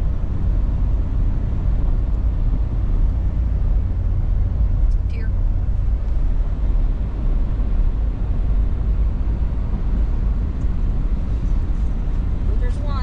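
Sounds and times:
road and tyre noise: 0:00.0 - 0:13.0.

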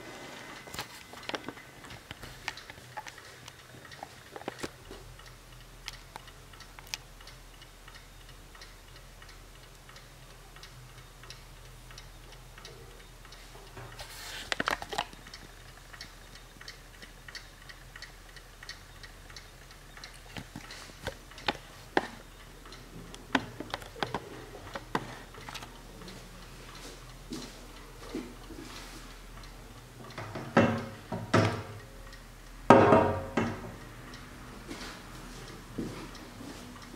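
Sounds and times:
mantel clock ticking: 0:00.6 - 0:36.9
clicks and rustle: 0:13.6 - 0:15.6.

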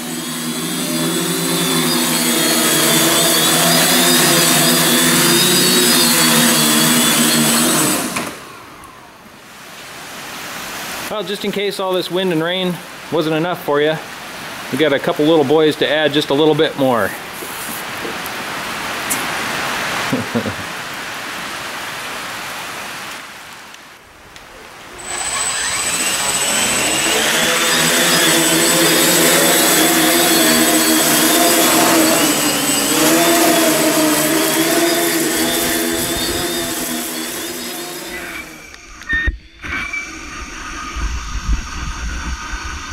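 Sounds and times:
drone propellers whining: 0:00.0 - 0:09.4, 0:24.8 - 0:42.9.

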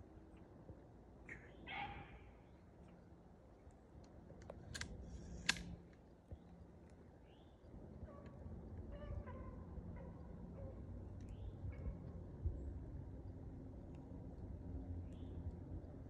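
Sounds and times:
small click: 0:04.0 - 0:05.7
sharp crack: 0:04.6 - 0:05.8.

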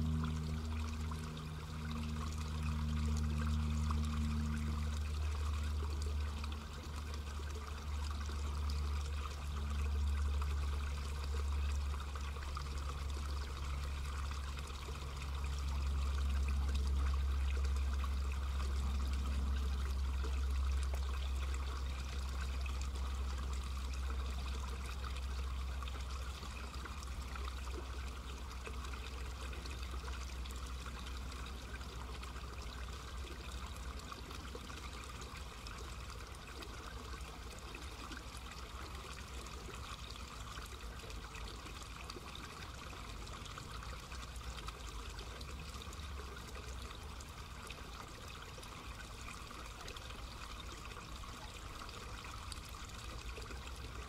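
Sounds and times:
low hum: 0:00.0 - 0:38.2.

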